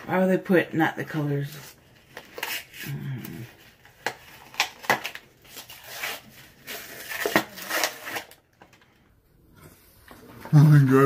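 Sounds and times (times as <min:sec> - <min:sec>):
plastic wrapping crinkling and tearing: 0:01.7 - 0:08.8.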